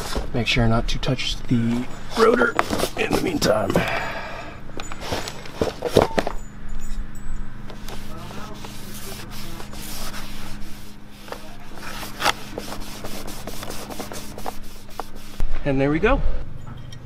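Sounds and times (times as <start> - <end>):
steady low hum: 0.0 - 17.0
cloth wiping brake rotor: 1.5 - 3.7, 7.7 - 15.4.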